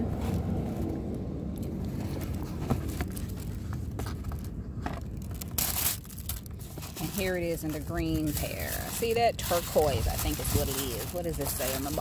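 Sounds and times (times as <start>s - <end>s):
cardboard rustle: 0.0s - 12.0s.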